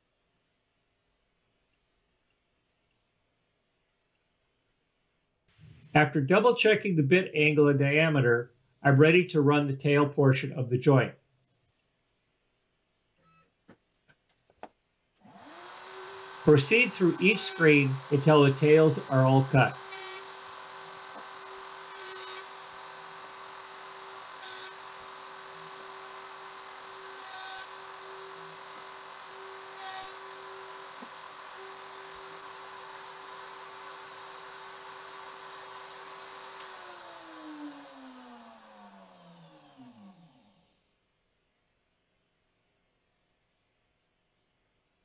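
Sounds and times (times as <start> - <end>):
router bit cutting wood: 15.2 - 40.8
router spinning down: 15.2 - 40.8
router whining: 15.2 - 40.8.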